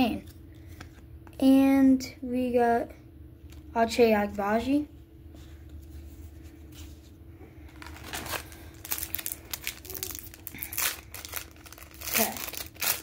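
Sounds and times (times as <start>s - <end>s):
card pack wrapper crinkling and tearing: 7.7s - 13.0s.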